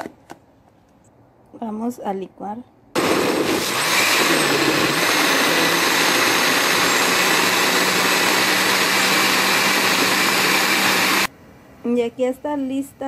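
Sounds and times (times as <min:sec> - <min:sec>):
blender running: 0:03.0 - 0:11.3.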